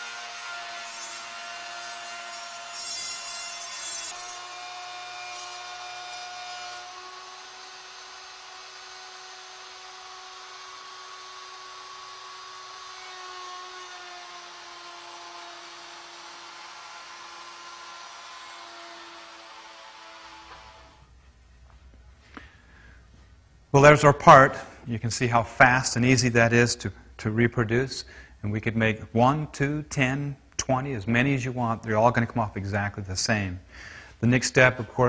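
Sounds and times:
router bit cutting wood: 0:00.0 - 0:21.1
router motor whine: 0:04.2 - 0:21.0.

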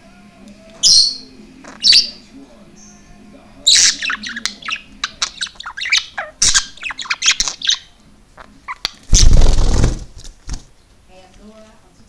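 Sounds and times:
budgerigar chirping: 0:00.8 - 0:02.2, 0:03.7 - 0:09.3
loud rustling: 0:09.0 - 0:10.7.

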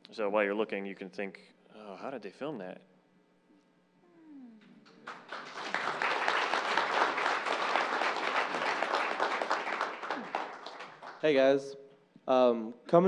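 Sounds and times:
audience applauding: 0:04.9 - 0:11.4.

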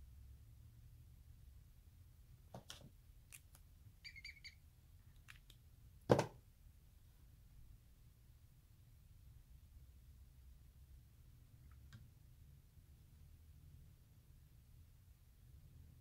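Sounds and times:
short high squeaky chirps: 0:04.0 - 0:04.6
knock on desktop: 0:06.1 - 0:06.4.

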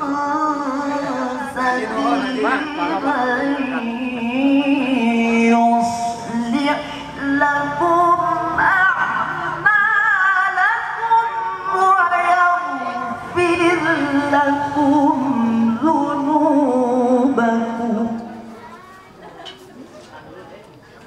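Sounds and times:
man reciting melodically: 0:00.0 - 0:09.6.

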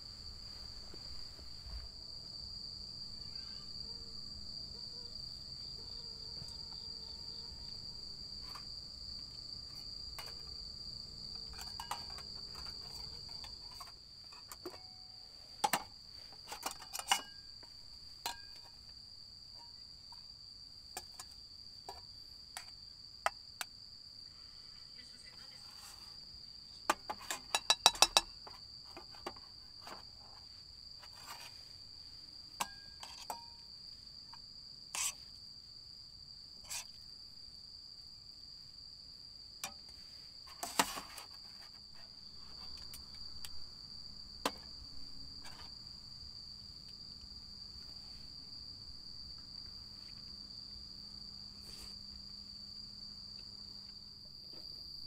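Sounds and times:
crickets chirring: 0:00.0 - 0:55.0
metal spoon clinking on pans: 0:11.6 - 0:12.2, 0:27.4 - 0:28.3.

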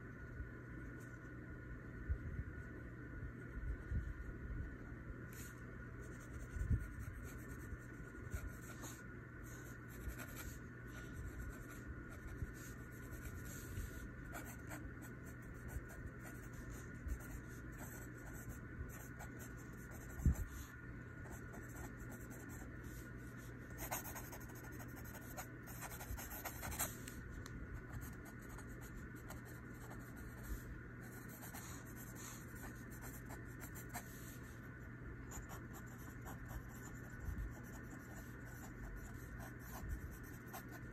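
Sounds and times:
faint steady hum: 0:00.0 - 0:40.9
pencil scratching on paper: 0:05.4 - 0:20.5, 0:23.8 - 0:27.0, 0:27.9 - 0:34.3, 0:35.3 - 0:40.9.

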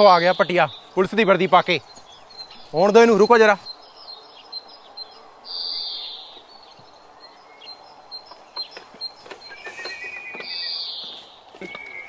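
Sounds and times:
bird chirping: 0:00.0 - 0:12.0.

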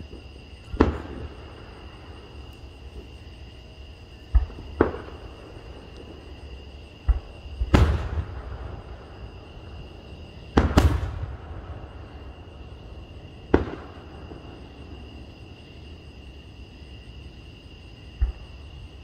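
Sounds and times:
firework booms: 0:00.7 - 0:01.9, 0:04.3 - 0:06.2, 0:07.0 - 0:15.1.

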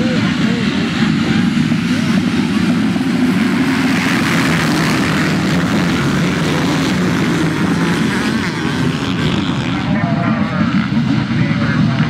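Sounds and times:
motocross bikes accelerating: 0:00.0 - 0:12.0.

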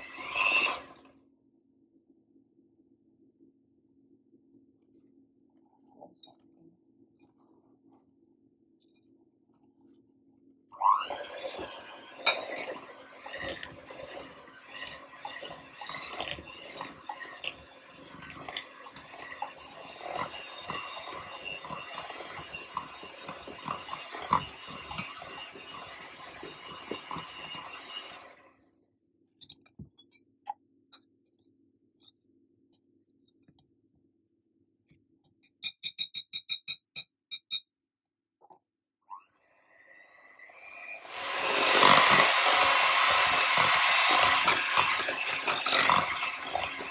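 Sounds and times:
electric hand mixer whining: 0:00.0 - 0:01.1, 0:10.8 - 0:28.5, 0:40.4 - 0:46.9.

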